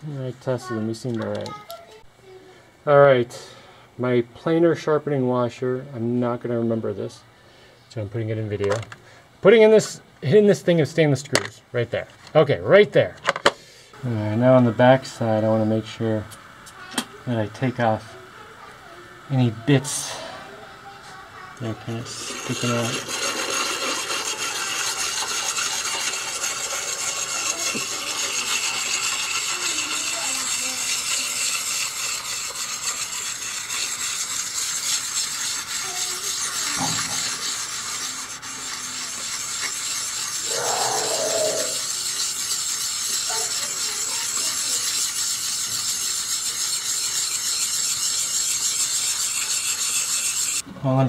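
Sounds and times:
hone scraping steel blade: 21.9 - 50.6.

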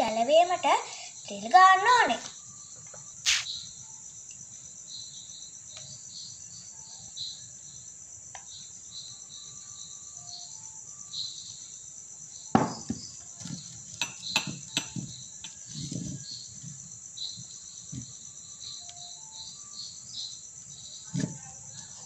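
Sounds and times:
insects chirring: 0.0 - 22.0.

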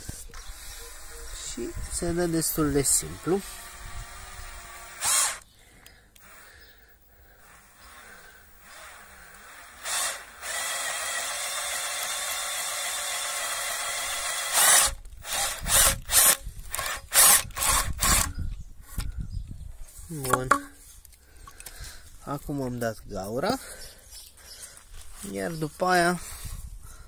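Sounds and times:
electric drill boring plastic: 0.3 - 5.5, 6.2 - 6.7, 7.3 - 18.3.

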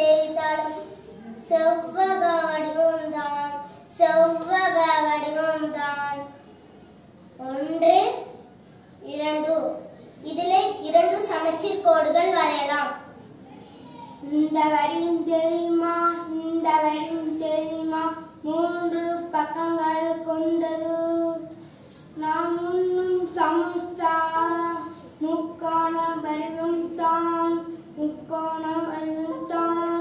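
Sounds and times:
child singing unaccompanied: 0.0 - 6.4, 14.2 - 21.6, 22.2 - 30.0.

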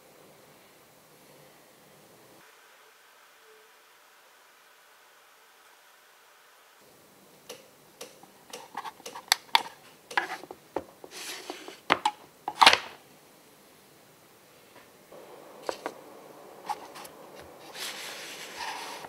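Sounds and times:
rustling scrapes: 9.6 - 11.9, 16.6 - 19.0.

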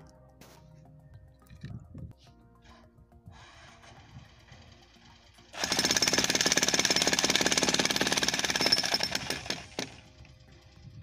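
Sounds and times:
jackhammer chiselling concrete: 3.6 - 10.1.

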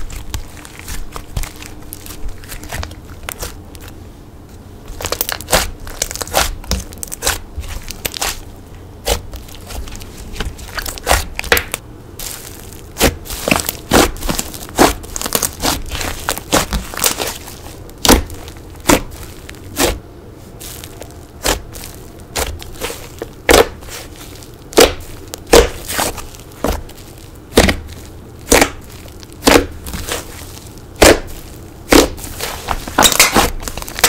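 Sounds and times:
slime popping and crackling: 0.0 - 3.9, 4.9 - 20.0, 20.6 - 34.0
slime squishing: 0.0 - 34.0.

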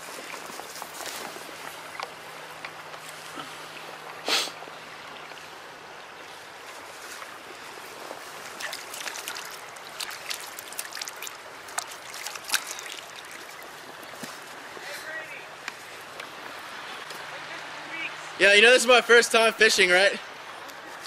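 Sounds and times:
stream trickling: 0.0 - 21.0
fish splashing in water: 6.8 - 14.9
hands splashing at water surface: 8.3 - 14.5.

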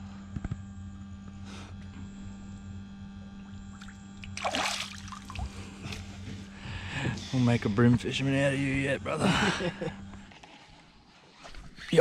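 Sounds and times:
low electrical hum: 0.0 - 12.0
fish splashing into water: 3.7 - 5.6.

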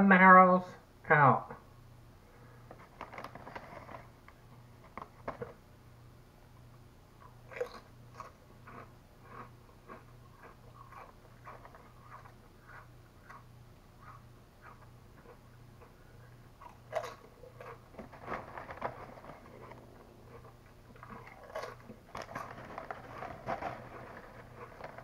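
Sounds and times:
low steady hum: 0.0 - 25.0
chip bag rustling: 2.8 - 4.2, 16.9 - 25.0
crunching potato chips: 7.2 - 25.0.

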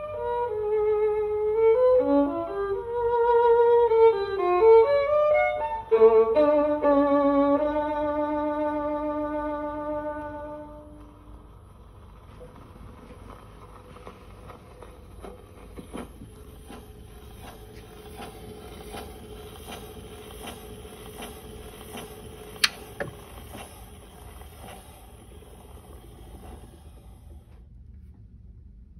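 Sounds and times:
gramophone needle clicking: 22.6 - 23.2
loud sharp click: 22.6 - 23.2.

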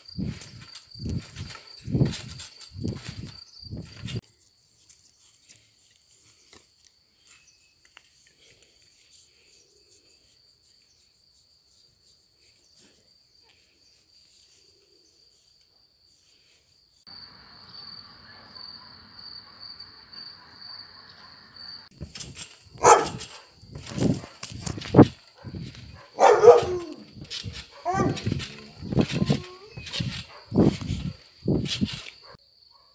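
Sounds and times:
dog barking: 18.3 - 19.6, 20.3 - 21.5, 22.8 - 24.4, 25.4 - 27.0, 27.7 - 28.5, 32.2 - 32.9
insect trilling: 21.6 - 32.3.

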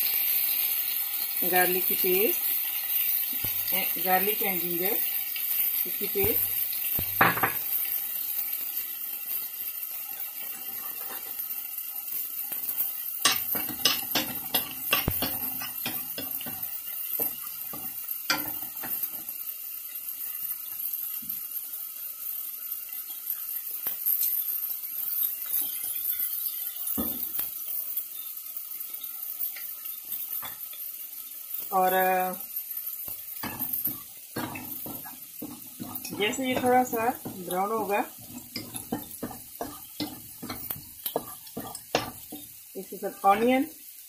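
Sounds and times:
paste sizzling in oil: 0.0 - 44.0
wooden spatula scraping pan: 33.5 - 42.4.

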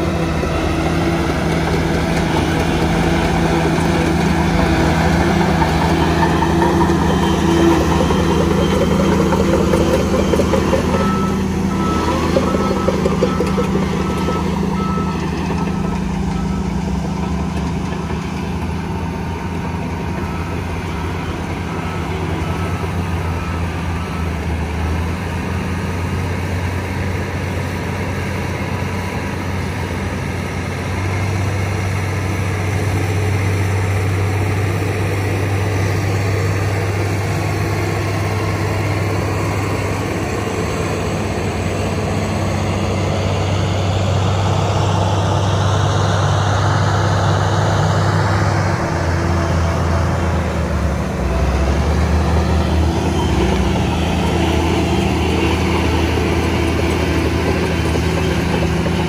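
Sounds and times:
reversing alarm beeping: 0.0 - 25.1
bulldozer diesel engine under load: 0.0 - 59.0.

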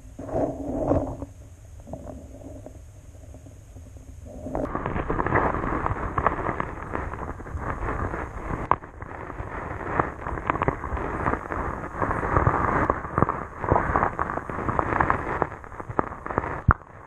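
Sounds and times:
underwater churning rumble: 0.0 - 17.0
sharp clicks and pops: 3.4 - 17.0.

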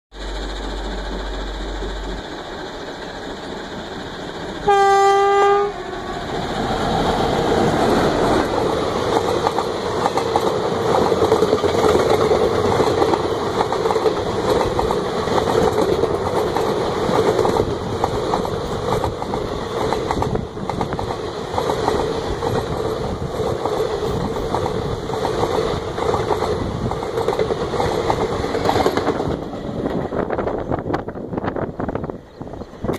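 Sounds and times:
train coaches rushing past: 0.1 - 32.9
locomotive air horn blast: 4.6 - 6.1
wheels clickety-clack on rails: 6.1 - 32.9.

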